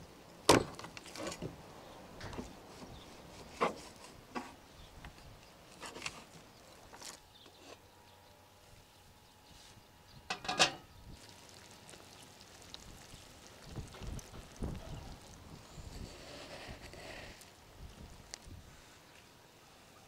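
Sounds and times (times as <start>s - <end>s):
metal lid clanking on pot: 10.3s - 10.9s.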